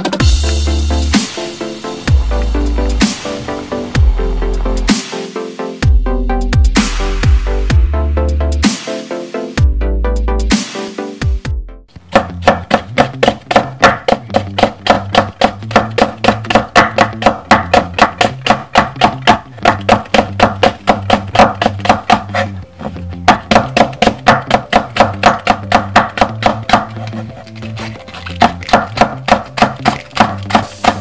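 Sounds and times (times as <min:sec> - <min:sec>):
background music with bass: 0:00.0 - 0:31.0
knife tapping on wooden board: 0:12.1 - 0:22.5, 0:23.3 - 0:27.2, 0:28.2 - 0:31.0.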